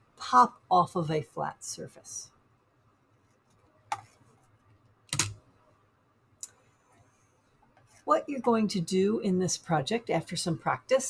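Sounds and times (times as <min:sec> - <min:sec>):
computer mouse clicks: 0:05.1 - 0:05.4.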